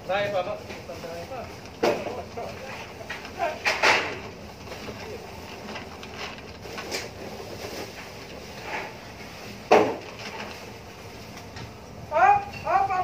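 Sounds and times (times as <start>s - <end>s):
objects being handled: 0.6s - 11.8s.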